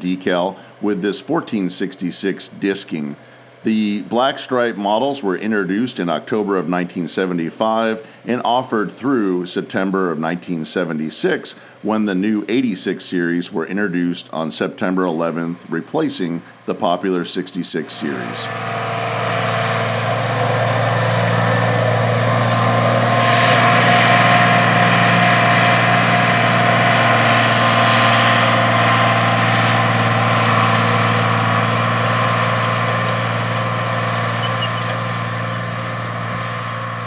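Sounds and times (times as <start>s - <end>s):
diesel tractor engine running: 14.3s - 37.0s.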